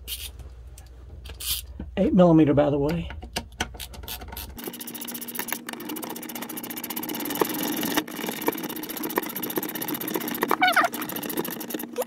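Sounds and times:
small motor buzzing: 0:04.1 - 0:12.0.

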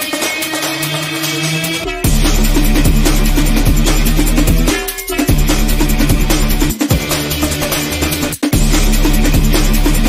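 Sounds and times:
electronic music with steady beat: 0:00.0 - 0:10.0.

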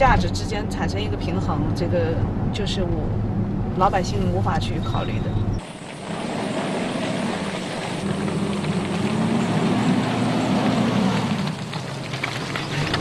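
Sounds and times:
suv engine pulling under load: 0:05.6 - 0:13.0
vehicle knocks and rattles: 0:07.5 - 0:13.0.

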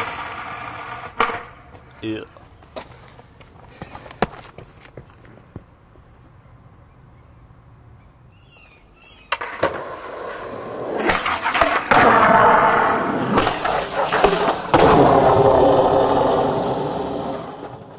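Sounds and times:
skateboard clacking: 0:00.0 - 0:01.8, 0:09.3 - 0:16.4
skateboard wheels rolling on concrete: 0:00.0 - 0:06.6, 0:08.4 - 0:17.9.

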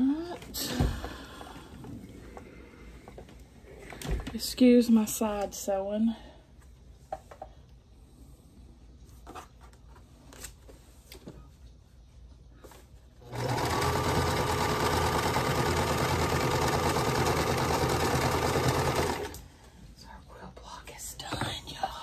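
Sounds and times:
sewing machine running: 0:13.2 - 0:19.4.

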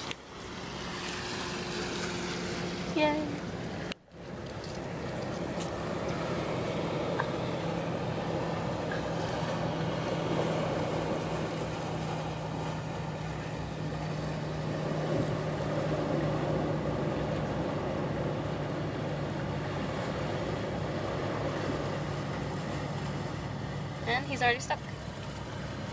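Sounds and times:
engine-like drone: 0:00.0 - 0:25.9.

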